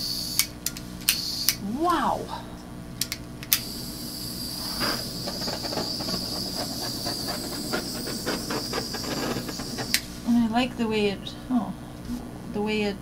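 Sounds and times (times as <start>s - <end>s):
handheld torch flame hissing: 0.0s - 1.6s, 3.5s - 10.5s
paint bubbles crackling: 4.6s - 10.0s.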